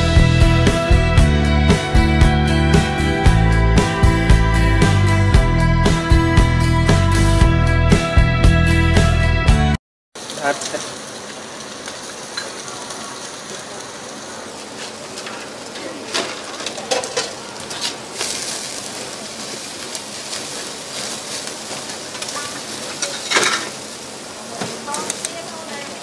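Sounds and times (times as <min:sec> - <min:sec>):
meat sizzling over charcoal: 0:10.2 - 0:26.0.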